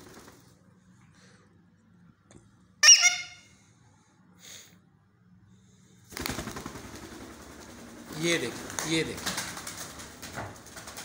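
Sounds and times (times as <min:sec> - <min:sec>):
wings fluttering: 0:00.0 - 0:00.6, 0:06.1 - 0:11.0
parakeet call: 0:02.8 - 0:03.5.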